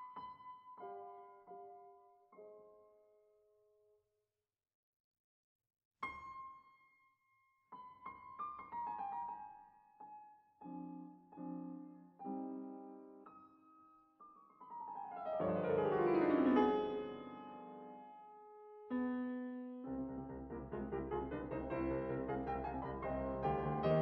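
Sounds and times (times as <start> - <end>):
solo piano music: 0.0 - 3.2, 7.7 - 24.0.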